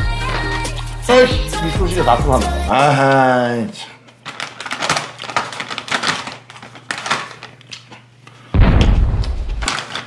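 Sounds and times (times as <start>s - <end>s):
plastic wipe pack crinkling: 4.0s - 8.5s, 9.2s - 10.0s.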